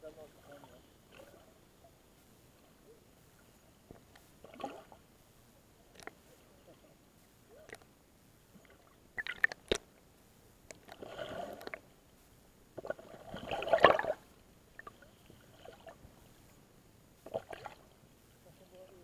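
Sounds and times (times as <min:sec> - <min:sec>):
sea water sloshing and gurgling: 0:00.3 - 0:06.9, 0:08.5 - 0:10.0, 0:10.7 - 0:12.0, 0:12.8 - 0:16.5, 0:17.2 - 0:19.0.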